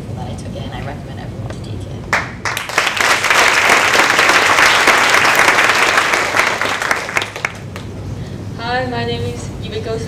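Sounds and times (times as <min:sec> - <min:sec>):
audience applauding: 0:02.2 - 0:07.9.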